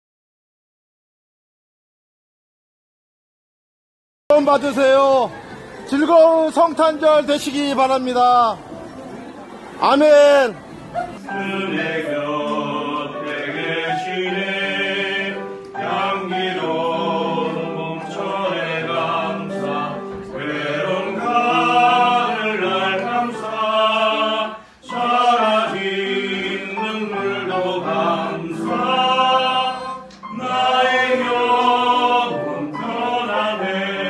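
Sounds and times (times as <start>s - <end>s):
group of voices singing: 10.6s - 34.0s.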